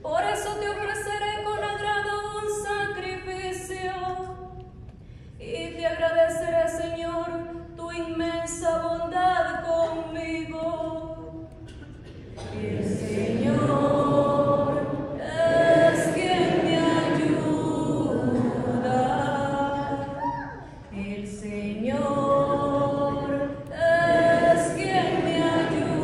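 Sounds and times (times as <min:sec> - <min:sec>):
congregation singing together: 0:11.7 - 0:26.0.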